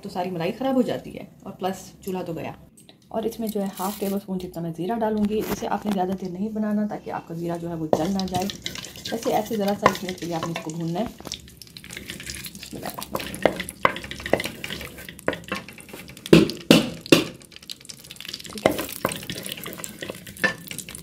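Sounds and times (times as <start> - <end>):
spoon scraping pot: 7.4 - 17.2, 18.2 - 21.0
spices sizzling in hot oil: 7.8 - 21.0.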